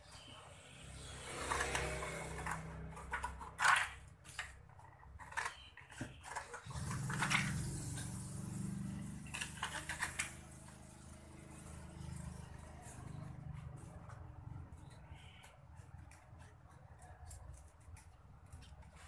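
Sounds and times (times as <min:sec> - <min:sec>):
scissors snipping paper: 0:12.8 - 0:19.0.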